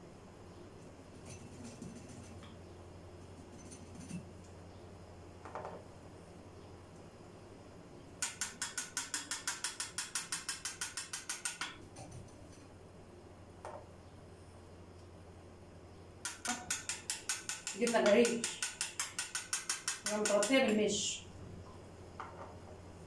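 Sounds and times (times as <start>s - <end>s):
low steady hum: 0.0s - 8.2s, 11.7s - 18.9s, 20.1s - 23.0s
ratchet-like mechanical clicks: 8.2s - 11.8s, 16.2s - 20.6s.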